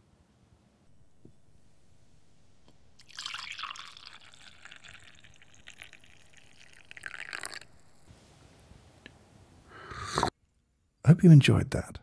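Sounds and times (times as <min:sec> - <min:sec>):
coffee pouring into a mug: 0:02.7 - 0:08.1.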